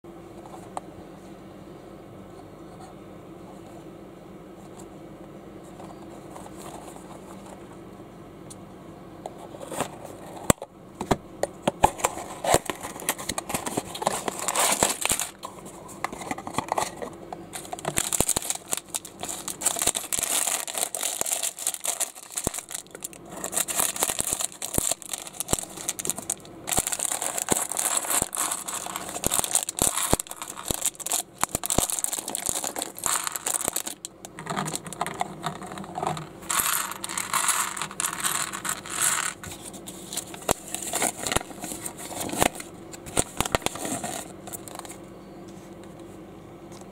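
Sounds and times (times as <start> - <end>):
low room hum: 0.0 - 46.9
plastic bag crinkled and torn: 12.0 - 15.4, 17.5 - 35.9, 40.2 - 44.8
plastic bricks clicking: 17.7 - 39.4.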